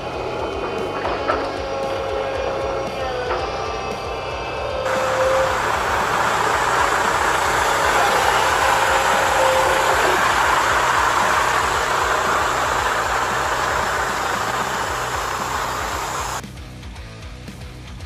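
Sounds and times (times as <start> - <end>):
toy truck electric motor: 4.9 - 16.4.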